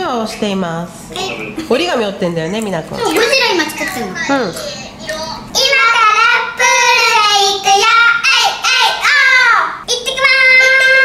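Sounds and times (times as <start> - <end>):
child singing high notes: 5.6 - 11.0.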